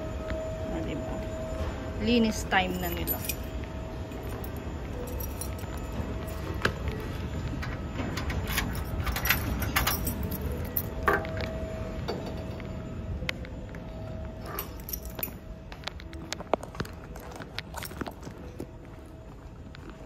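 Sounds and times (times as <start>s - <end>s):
keys jangling: 2.8s - 3.5s, 4.2s - 6.6s, 7.6s - 11.2s, 14.4s - 15.4s.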